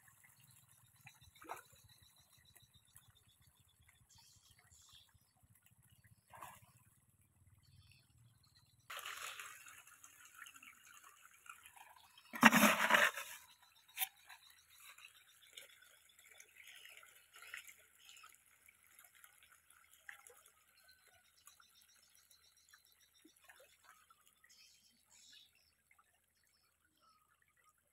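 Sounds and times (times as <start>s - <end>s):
fish splashing at water surface: 8.9s - 18.0s.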